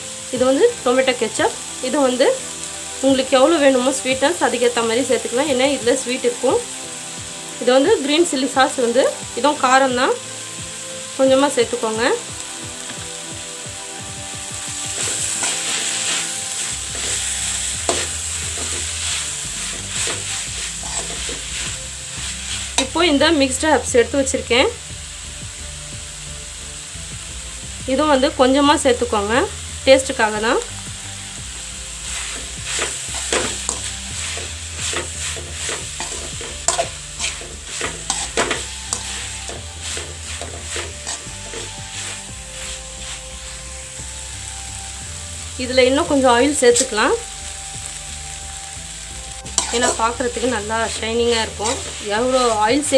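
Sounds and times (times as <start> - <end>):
vegetables sizzling in a pan: 0.0 - 52.9
metal ladle scraping pan: 15.0 - 23.1, 32.1 - 43.5, 49.5 - 52.9.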